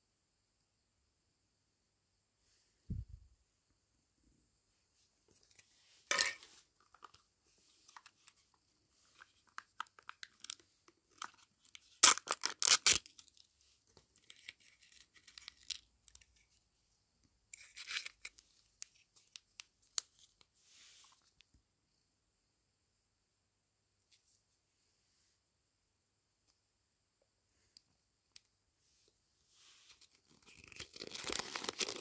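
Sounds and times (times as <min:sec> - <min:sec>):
toy packet tearing and crinkling: 0:09.1 - 0:13.5, 0:14.2 - 0:16.3, 0:17.6 - 0:20.2, 0:30.1 - 0:32.0.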